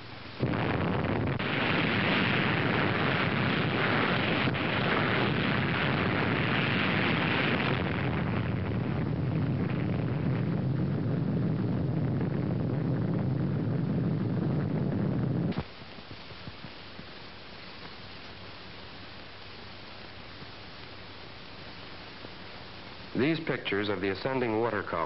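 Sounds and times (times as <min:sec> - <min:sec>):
rumbling explosion blast: 0:00.4 - 0:15.6.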